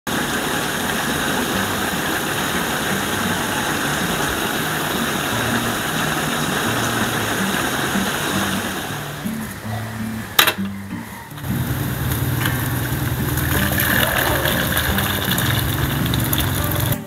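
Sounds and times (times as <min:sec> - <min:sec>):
liquid boiling in wok: 0:11.4 - 0:17.0.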